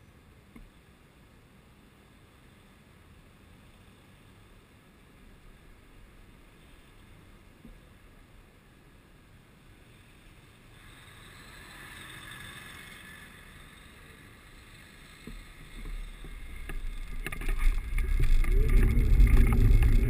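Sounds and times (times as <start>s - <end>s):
faint traffic noise: 0.0s - 19.8s
wind rumble on microphone: 15.2s - 20.0s.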